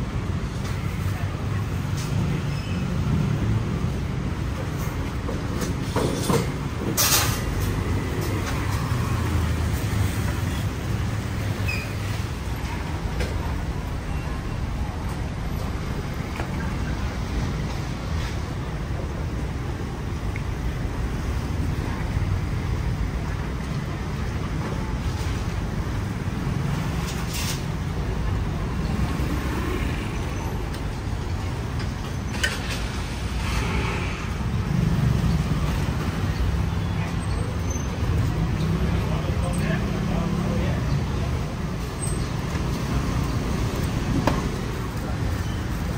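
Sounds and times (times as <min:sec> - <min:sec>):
city street traffic rumble: 0:00.0 - 0:45.9.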